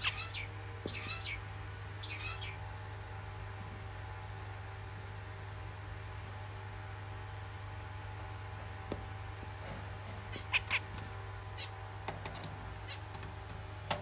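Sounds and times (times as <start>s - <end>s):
finch nasal calls: 0.0s - 1.4s, 2.0s - 2.6s, 10.3s - 10.9s.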